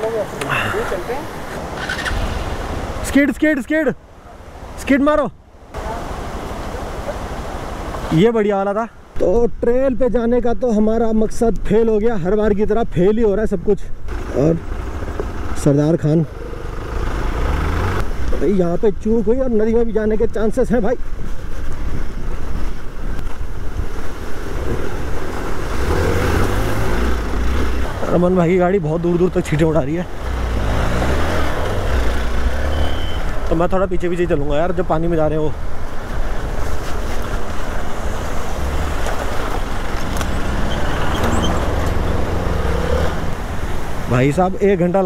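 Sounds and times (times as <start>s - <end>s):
motorcycle engine rumble: 35.8s - 44.0s
water splashing: 35.8s - 44.3s.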